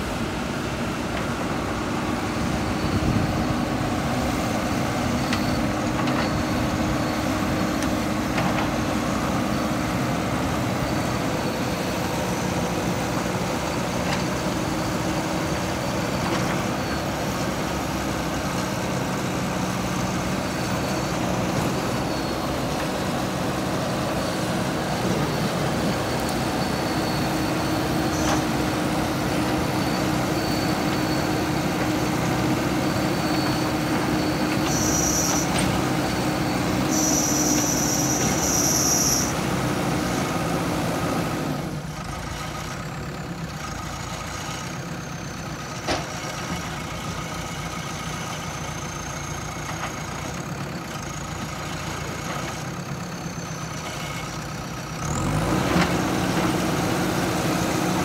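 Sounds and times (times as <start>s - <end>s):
diesel engine running: 0.0s - 58.0s
short high whines: 32.8s - 39.4s.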